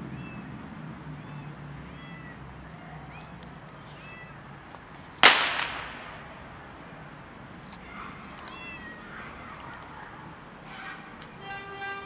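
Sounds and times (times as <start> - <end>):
cat meowing: 1.1 - 4.6, 8.1 - 9.6
loud bang with ringing: 5.2 - 6.5.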